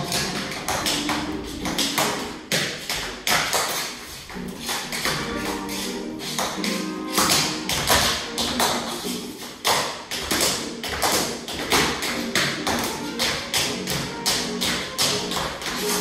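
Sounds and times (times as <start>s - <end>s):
dance shoes tapping on wood: 0.0s - 16.0s
music with sustained tones: 4.2s - 9.2s.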